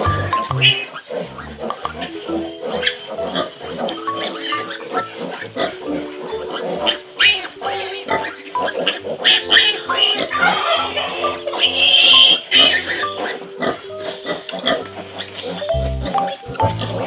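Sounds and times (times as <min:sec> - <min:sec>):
background music with steady beat: 0:00.0 - 0:17.0
piglets squealing: 0:00.0 - 0:17.0.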